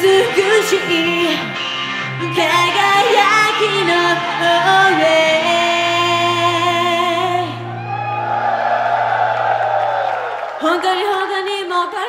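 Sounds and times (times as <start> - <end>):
woman singing into microphone: 0.0 - 7.7, 10.6 - 12.0.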